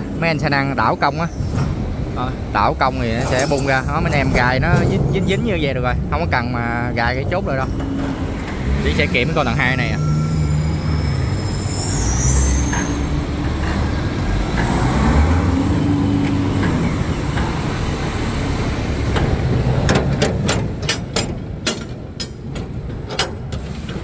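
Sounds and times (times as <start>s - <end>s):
truck engine running: 1.3s - 24.0s
high squeal: 8.7s - 19.1s
sharp clicks and knocks: 19.1s - 24.0s.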